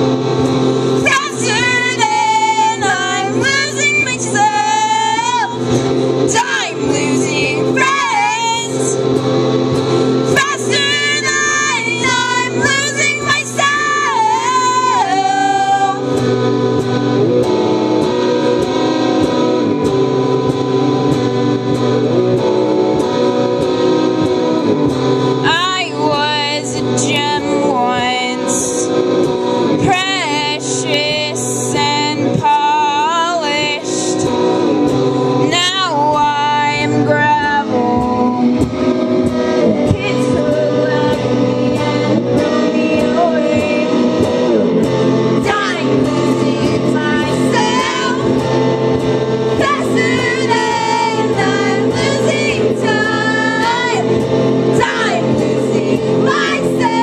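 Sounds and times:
electric guitar strumming: 0.0 - 57.0
person singing: 29.5 - 34.4, 35.5 - 38.7, 39.6 - 44.2, 49.6 - 54.1, 54.7 - 57.0.

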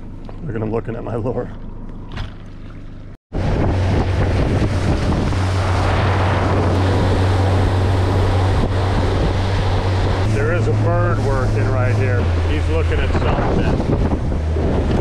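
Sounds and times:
outboard motor running: 0.0 - 15.0
boat wake rushing: 2.1 - 15.0
wind buffeting microphone: 3.3 - 15.0.

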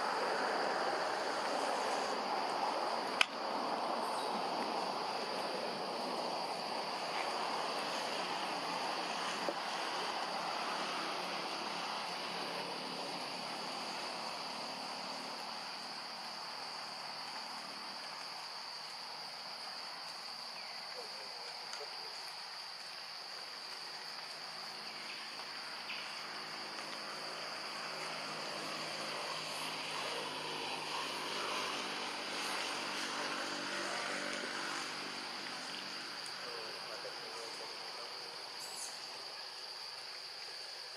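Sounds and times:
forest ambience hiss: 0.0 - 40.9
insects droning: 0.0 - 40.9.

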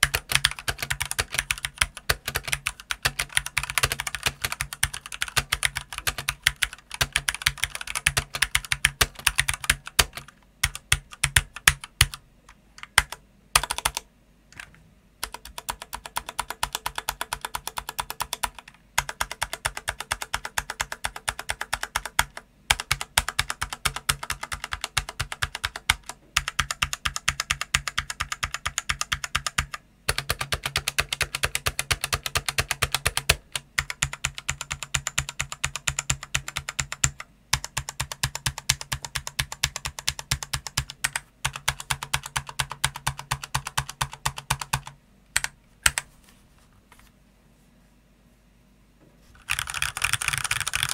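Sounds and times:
mechanical keyboard key clacks: 49.4 - 50.9.

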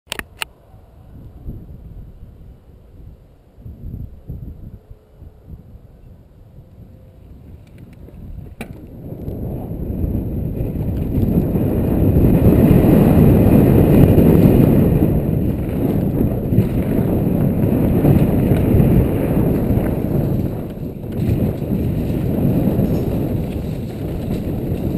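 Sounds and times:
single click: 0.1 - 0.5
wind buffeting the microphone: 0.2 - 24.9
bike tyres rumbling on dirt: 7.4 - 24.9.

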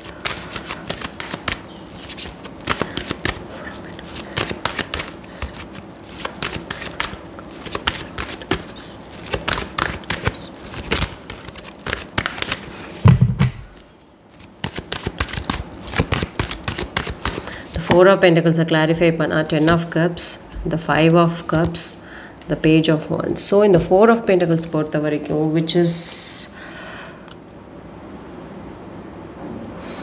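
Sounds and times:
cards being shuffled: 0.0 - 18.0, 21.4 - 21.9.

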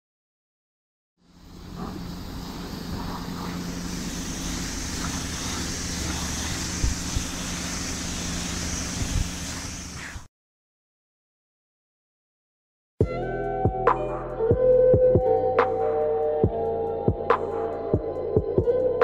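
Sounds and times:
low hum: 1.2 - 10.3
pressure washer jet hissing: 1.2 - 10.3.

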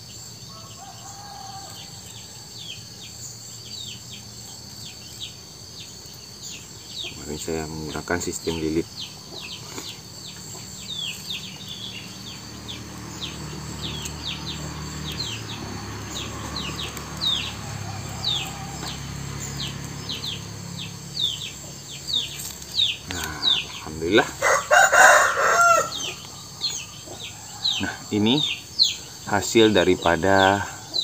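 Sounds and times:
chicken calling loudly: 23.5 - 27.7.

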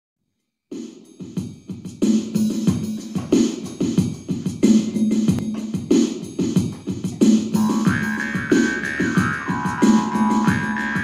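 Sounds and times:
higher melody line: 7.6 - 11.0
jaw harp twanging: 7.6 - 11.0.

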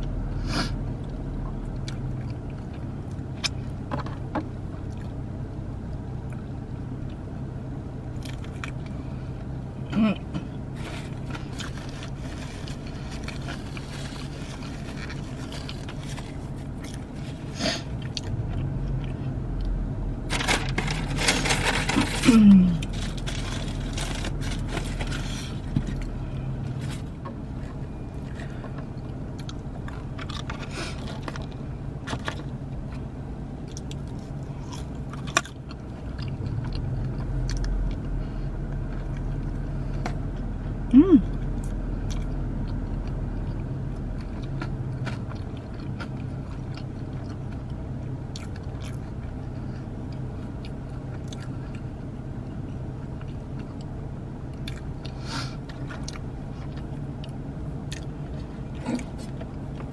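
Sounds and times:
low hum: 0.0 - 59.9
crunchy chewing: 8.2 - 9.0, 10.8 - 19.7, 20.3 - 33.0, 33.6 - 38.1, 41.3 - 52.0, 52.6 - 59.9
wrapper rustle: 20.3 - 25.7.

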